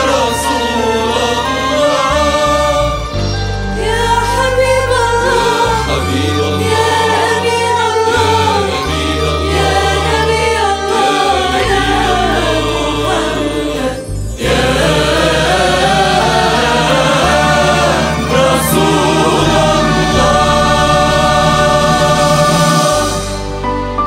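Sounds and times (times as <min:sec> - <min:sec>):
voices singing devotional song: 0:00.0 - 0:23.6
instrumental backing with bass: 0:00.0 - 0:24.0.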